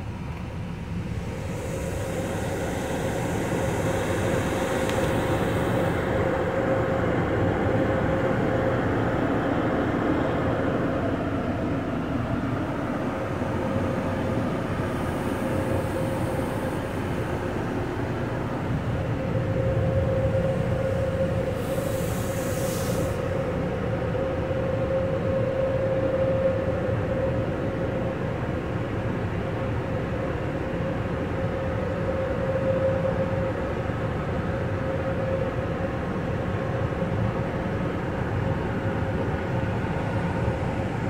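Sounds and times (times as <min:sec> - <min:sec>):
machinery rumble and hum: 0:00.0 - 0:41.0.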